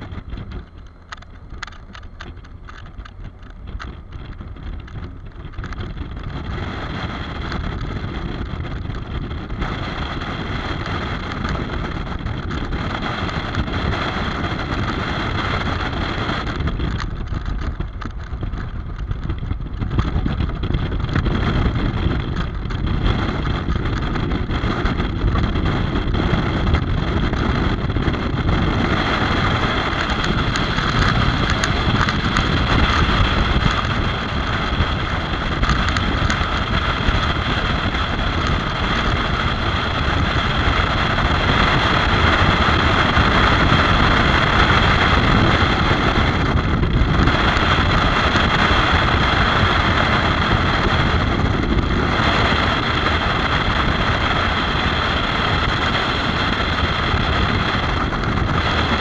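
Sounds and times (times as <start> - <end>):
motorcycle engine: 0.0 - 59.0
wind rushing over microphone: 0.0 - 59.0.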